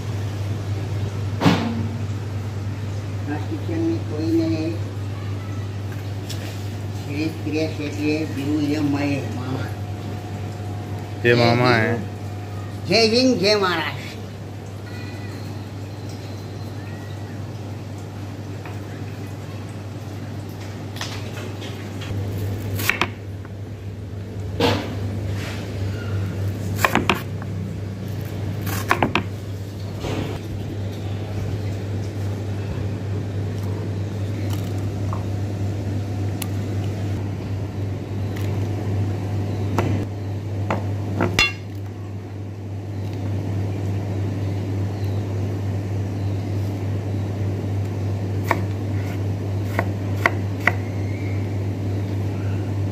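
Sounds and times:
kitchen machinery hum: 0.0 - 52.9.

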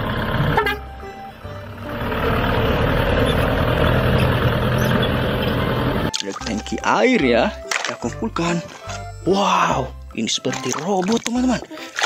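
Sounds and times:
background music: 0.0 - 3.3, 5.8 - 12.0
truck engine running: 0.0 - 6.1.

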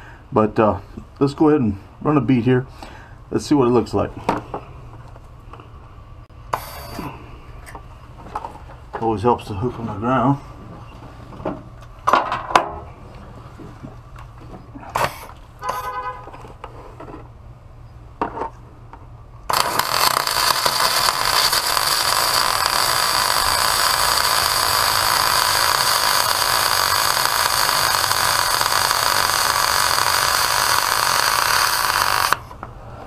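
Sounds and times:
welding arc noise: 6.6 - 7.0, 19.5 - 32.5.

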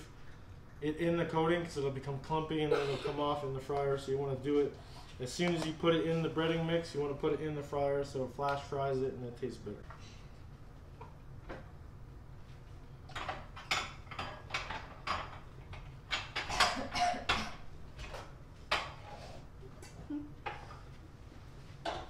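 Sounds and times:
dishes and utensils clattering: 13.1 - 19.2.

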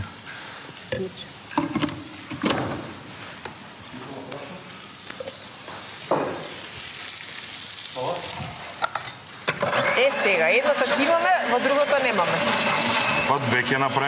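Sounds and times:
food sizzling in a frying pan: 0.0 - 14.0
utensil knocks: 6.1 - 6.5.

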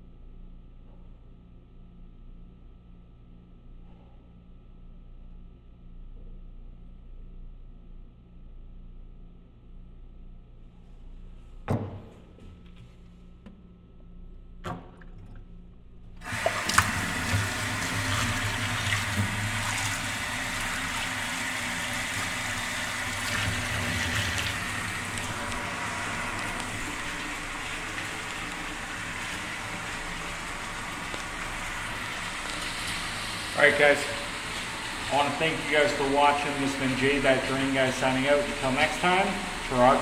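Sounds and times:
tap water running into sink: 16.2 - 40.0.

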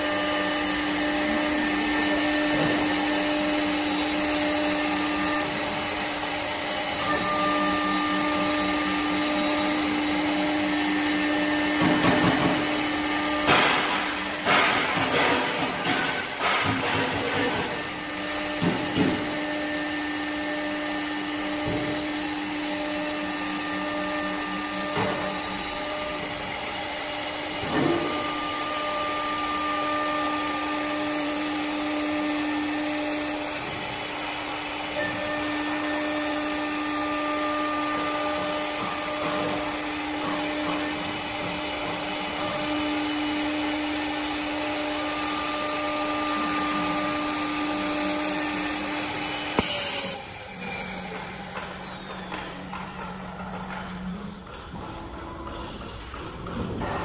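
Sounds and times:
bit cutting wood: 0.0 - 54.0
router spindle whine: 0.0 - 55.5.

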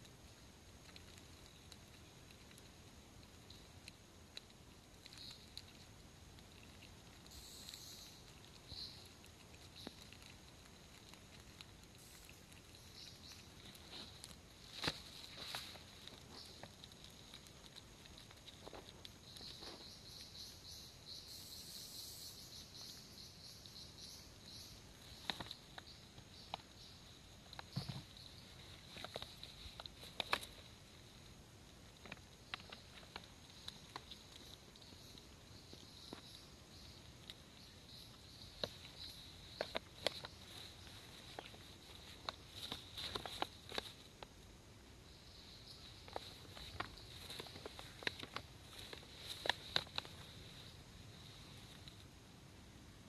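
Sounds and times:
beetles clicking and scratching: 0.0 - 52.4
insect chirping high-pitched: 5.1 - 5.8, 6.6 - 10.3, 16.3 - 31.3
beetles rustling scuffles: 11.7 - 20.5, 27.6 - 31.2, 37.9 - 44.4, 45.6 - 52.0.

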